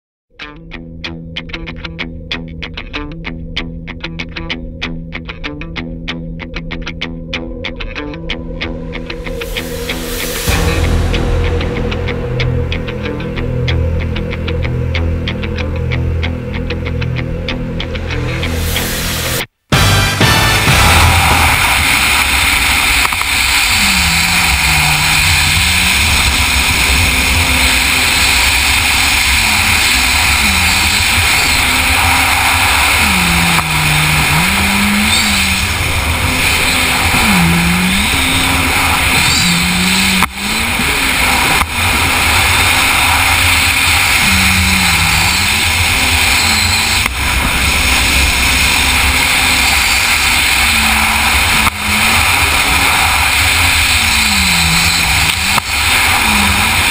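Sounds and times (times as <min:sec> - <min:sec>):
watercraft engine revving: 0:09.5 - 0:56.9
wind and water rushing: 0:20.6 - 0:56.9.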